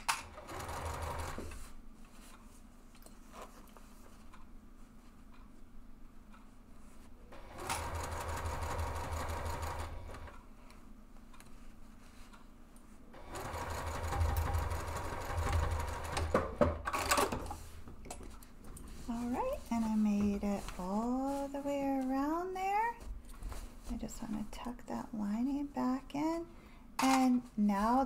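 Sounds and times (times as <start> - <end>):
sewing machine stitching: 0.0 - 1.7, 7.4 - 10.4, 13.2 - 17.6.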